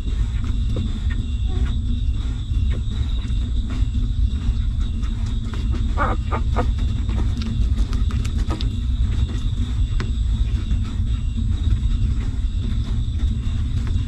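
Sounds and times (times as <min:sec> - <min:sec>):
steady low rumble: 0:00.0 - 0:14.0
puppies sucking clicks: 0:05.3 - 0:10.2.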